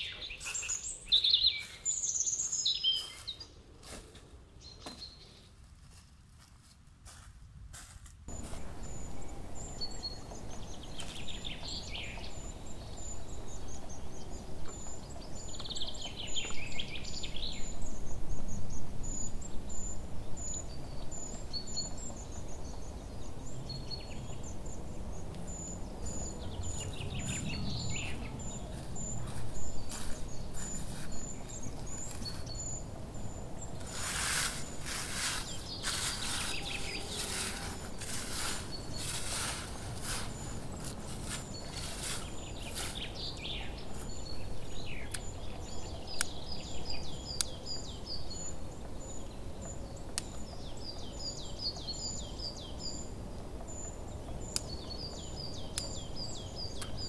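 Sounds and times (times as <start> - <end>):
small songbirds calling: 0.0 - 5.5, 8.3 - 57.0
low outdoor background noise: 0.0 - 57.0
dry leaves rustling and crunching: 27.9 - 32.5, 33.7 - 44.2.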